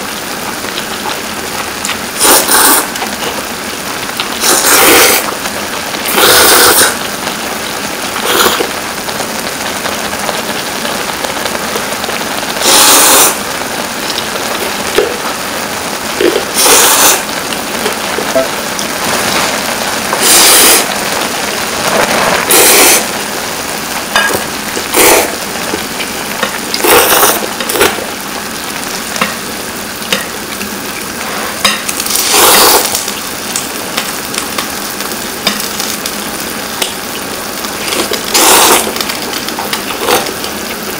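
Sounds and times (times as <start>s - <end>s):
steady hiss: 0.0s - 40.9s
person slurping noodles: 2.2s - 3.0s, 4.4s - 5.3s, 6.1s - 7.0s, 8.2s - 8.7s, 12.6s - 13.4s, 16.2s - 17.3s, 20.2s - 20.9s, 22.2s - 23.1s, 24.8s - 25.4s, 26.8s - 28.0s, 31.2s - 33.0s, 37.8s - 39.0s, 39.9s - 40.3s.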